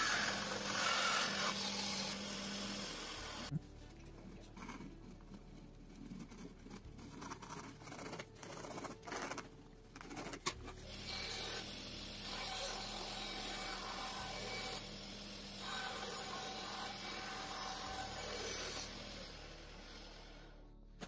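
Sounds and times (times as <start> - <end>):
bandsaw cutting wood: 0.0 - 3.5, 10.8 - 20.5
pencil scratching on wood: 4.2 - 10.8.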